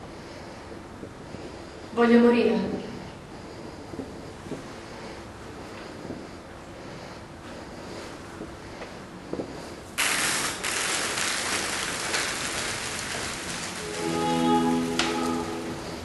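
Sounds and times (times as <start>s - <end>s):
steady hiss: 9.4s - 16.0s
music of long held chords: 13.8s - 16.0s.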